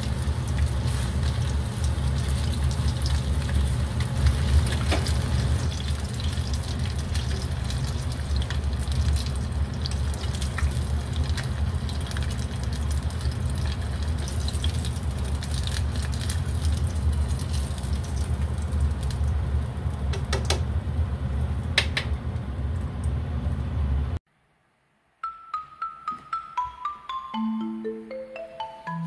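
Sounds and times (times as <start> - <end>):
marimba-like mallet tune: 25.2 - 29.0.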